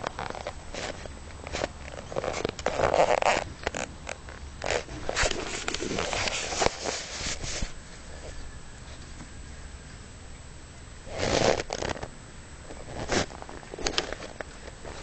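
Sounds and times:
animal chewing grass: 0.0 - 9.2.

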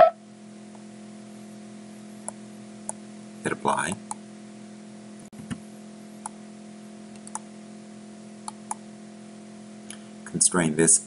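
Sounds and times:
low electrical hum: 0.0 - 11.0
computer mouse clicking: 7.2 - 7.4, 8.5 - 8.8.

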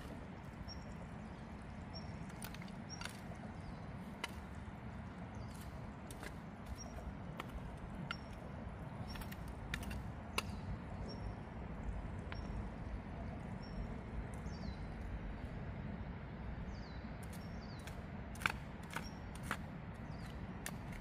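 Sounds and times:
hand hoe working stony soil: 0.0 - 10.6, 17.2 - 21.0
steady low rumble: 0.0 - 21.0
small bird chirping: 0.4 - 4.0
hoe blade clicking on stones: 0.8 - 11.2, 17.2 - 21.0.

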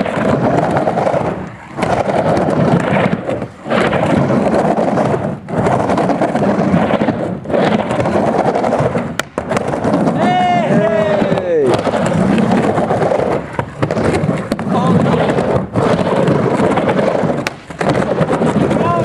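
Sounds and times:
skateboard wheels rolling: 0.0 - 19.0.

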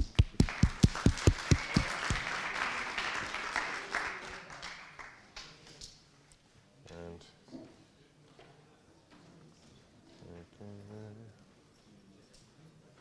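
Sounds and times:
audience applause: 0.0 - 5.2
close quick claps: 0.0 - 5.6.

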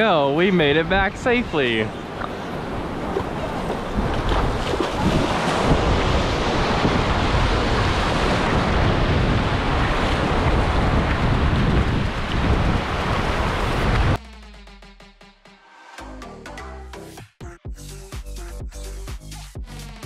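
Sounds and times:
ocean surf washing onto beach: 0.0 - 14.2
wind buffeting microphone: 0.8 - 14.2.

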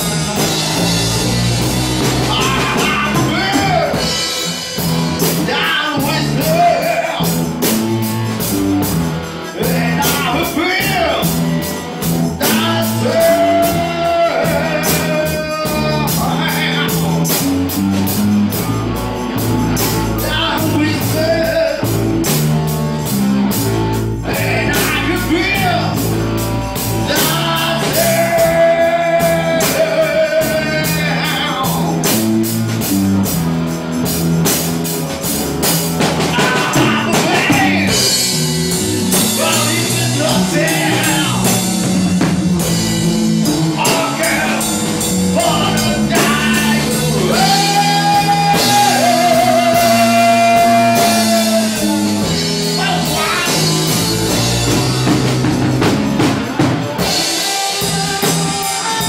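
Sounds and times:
man singing: 0.0 - 8.4, 9.4 - 22.6, 23.9 - 32.9, 36.0 - 56.0, 56.9 - 59.0
rock band playing: 0.0 - 59.0.

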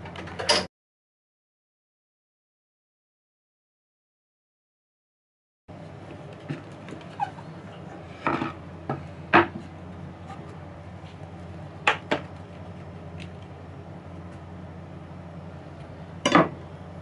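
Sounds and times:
steady low hum: 5.7 - 17.0.

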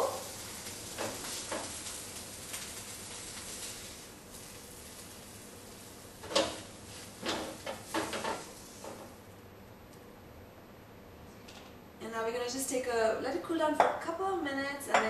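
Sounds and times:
faint pan sizzle: 0.0 - 9.4.

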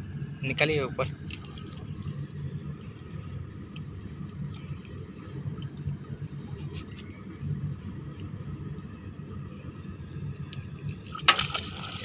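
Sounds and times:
eel splashing in water: 11.0 - 12.0.

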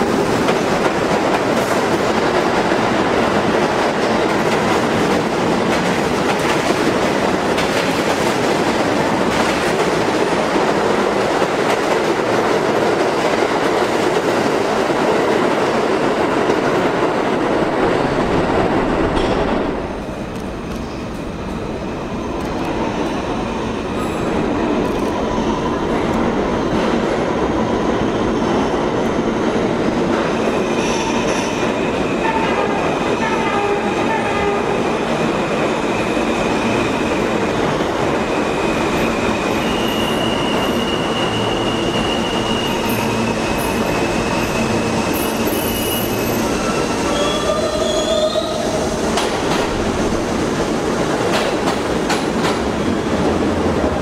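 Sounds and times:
subway cars rumbling and clattering: 0.0 - 54.0
subway wheels squealing: 20.8 - 29.0, 30.0 - 50.1.

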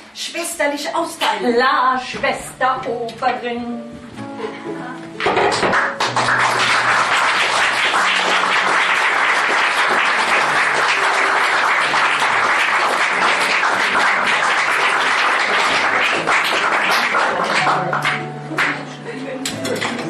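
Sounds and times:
music playing: 2.1 - 20.0
audience applauding: 5.5 - 20.0.

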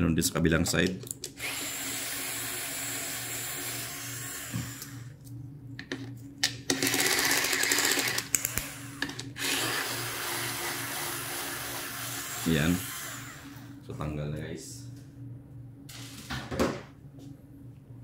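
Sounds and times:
cordless screwdriver running: 1.4 - 5.1, 6.7 - 13.7.

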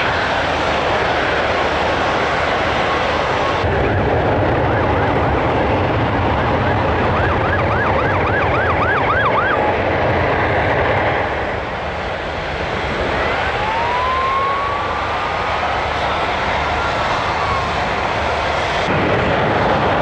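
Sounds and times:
jet roar: 0.0 - 20.0
siren-like whoop: 6.1 - 9.7, 13.1 - 18.5
rising whine: 11.2 - 19.6.

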